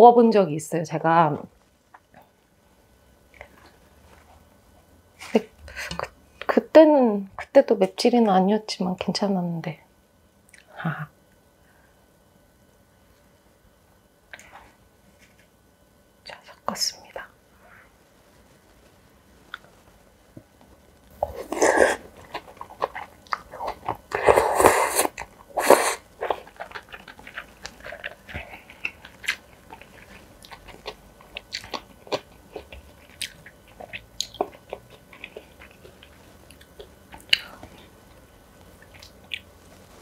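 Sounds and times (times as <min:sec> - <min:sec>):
wet chewing clicks: 0:21.1 - 0:39.7
noisy slurping mouthfuls: 0:21.2 - 0:36.2.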